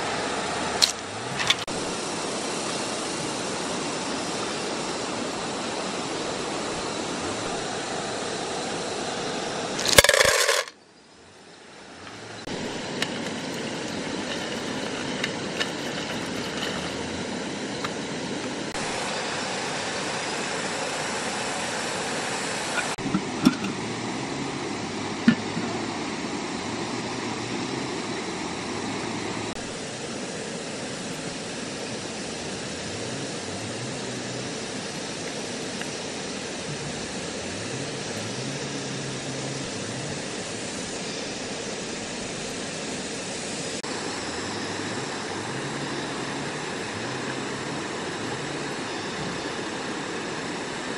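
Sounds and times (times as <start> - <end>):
stream rushing: 0.0 - 10.7, 11.6 - 50.9
snails clinking in metal pot: 9.8 - 10.8, 12.6 - 17.0.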